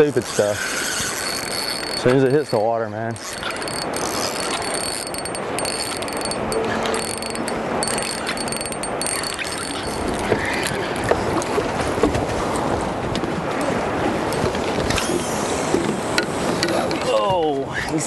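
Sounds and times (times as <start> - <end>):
wind and water hiss: 0.0 - 18.0
fishing reel clicking: 0.2 - 10.2.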